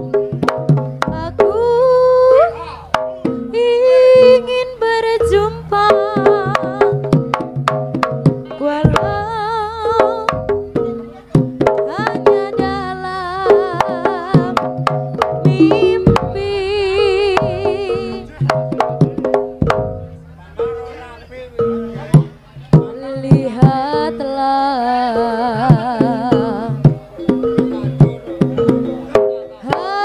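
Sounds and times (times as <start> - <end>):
wavering lead melody: 0.0 - 30.0
sharp drum strokes: 13.4 - 20.8.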